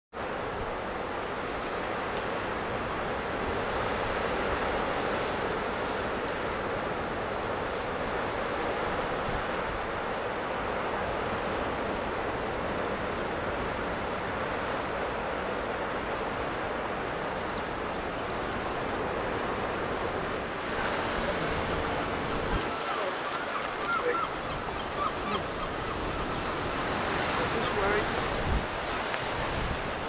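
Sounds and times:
wind: 0.1s - 30.0s
surf breaking on rocks: 19.1s - 30.0s.

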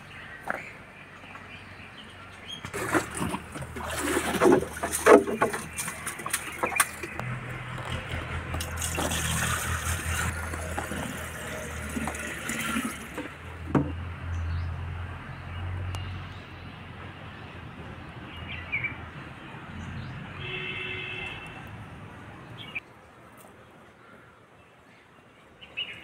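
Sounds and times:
water pouring into pot: 8.6s - 13.3s.

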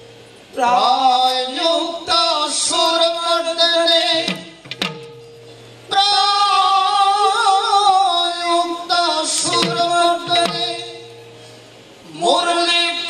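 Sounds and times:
person singing melodic line: 0.6s - 3.1s, 5.9s - 11.2s
drum strokes with falling pitch: 4.2s - 5.3s, 9.4s - 11.2s.

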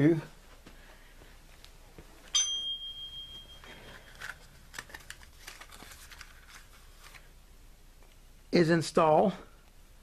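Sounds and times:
ringing metal clink: 2.3s - 4.1s.

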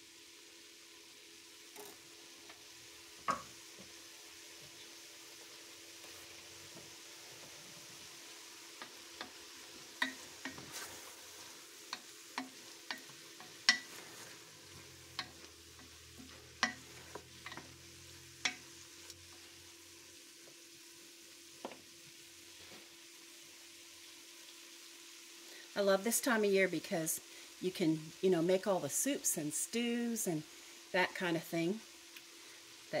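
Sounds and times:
chicken sizzling faintly: 0.0s - 33.0s
wooden spoon knocking a pot: 3.2s - 3.5s, 10.0s - 10.6s, 11.9s - 14.0s, 15.2s - 17.8s.

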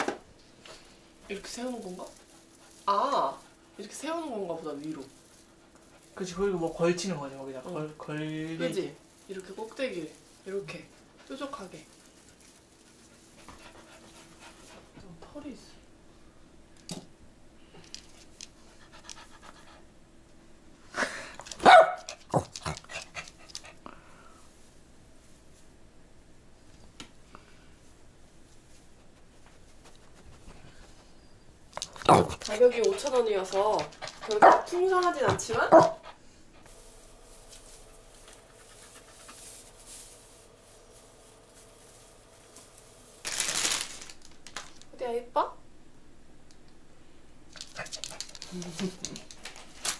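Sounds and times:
faint steady hum: 0.0s - 49.9s
loud crinkling rustle: 0.6s - 14.8s, 36.6s - 44.9s, 47.5s - 49.9s
tinsel rustling: 0.7s - 14.8s, 36.6s - 45.0s, 47.5s - 49.9s
dog panting: 5.3s - 7.0s, 10.5s - 15.1s, 18.6s - 19.9s, 22.1s - 23.9s, 29.0s - 31.2s, 31.8s - 36.8s, 38.3s - 39.8s, 47.5s - 49.7s
dog barking: 21.6s - 22.2s, 34.3s - 34.8s, 35.5s - 36.1s.

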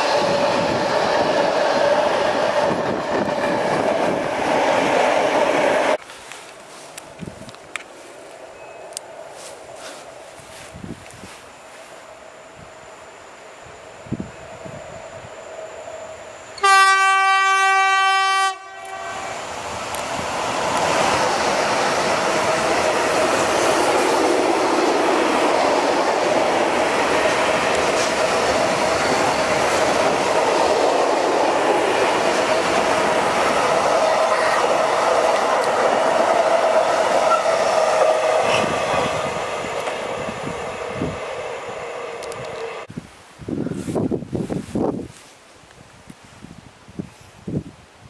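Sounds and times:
train wheels rumbling and clattering: 0.0s - 6.0s, 19.5s - 42.9s
locomotive horn blast: 16.6s - 19.4s.

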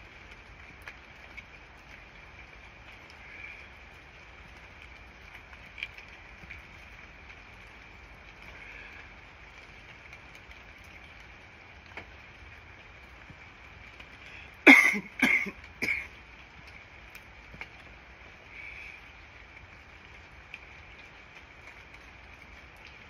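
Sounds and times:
man coughing: 14.7s - 16.1s.

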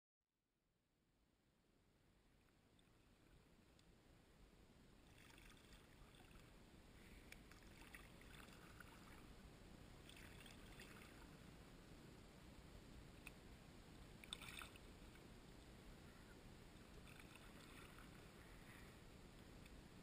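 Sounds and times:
low steady rumble: 1.4s - 20.0s
kayak paddle strokes in water: 7.2s - 9.4s, 10.0s - 11.6s, 16.3s - 18.9s.

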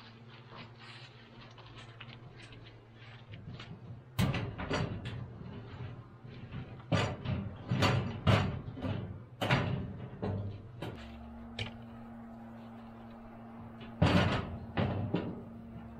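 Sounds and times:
sharp knocks and clunks: 3.4s - 11.8s, 13.4s - 15.9s.

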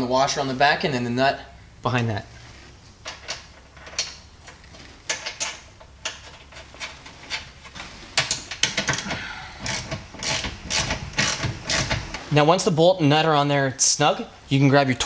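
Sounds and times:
socket ratchet clicking: 8.2s - 12.1s.

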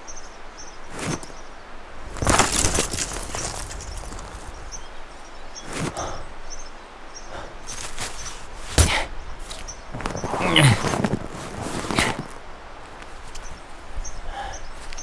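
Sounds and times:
rustling in snow: 0.6s - 6.7s, 7.6s - 15.0s
snow crunch: 0.9s - 1.3s, 2.0s - 4.9s, 5.6s - 6.2s, 7.7s - 13.4s.

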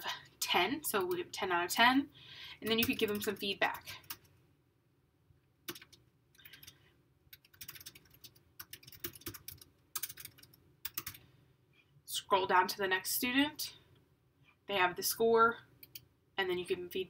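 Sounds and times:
typing on computer keyboard: 5.7s - 11.2s.

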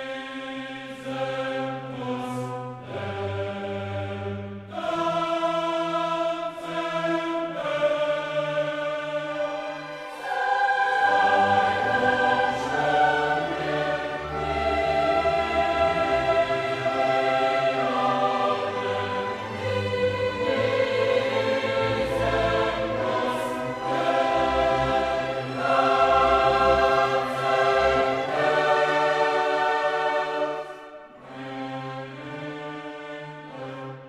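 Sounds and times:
choir singing: 0.0s - 34.0s
orchestral strings: 0.0s - 34.0s
orchestra playing: 9.4s - 34.0s.

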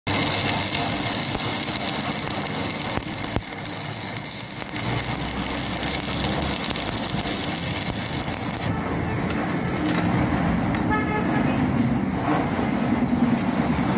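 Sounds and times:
welding arc crackling: 0.0s - 10.7s.

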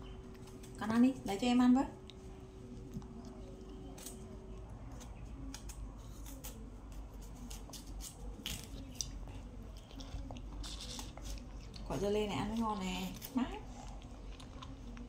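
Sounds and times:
low room hum: 0.0s - 15.0s
wet eating smacks and clicks: 13.9s - 15.0s.

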